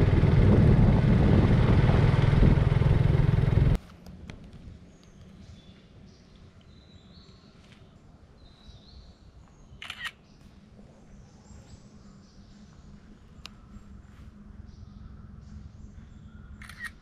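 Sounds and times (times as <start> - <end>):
steady low hum: 0.0 - 6.1, 9.1 - 17.0
birds calling: 8.5 - 17.0
single click: 9.8 - 10.2, 16.6 - 17.0.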